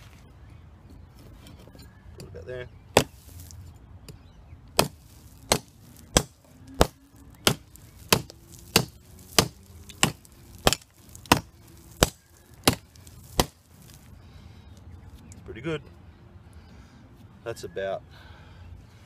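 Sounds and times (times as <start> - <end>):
hatchet chopping wood: 3.0 - 3.3, 4.8 - 13.6.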